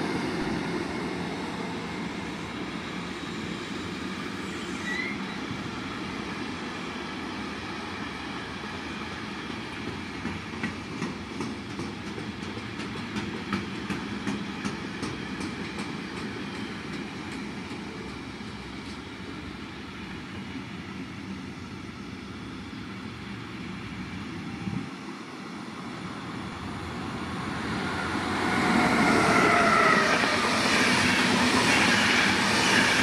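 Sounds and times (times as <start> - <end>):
train wheels rumbling: 7.5 - 21.8, 25.8 - 33.0
train wheels clickety-clack: 9.0 - 19.6, 27.5 - 33.0.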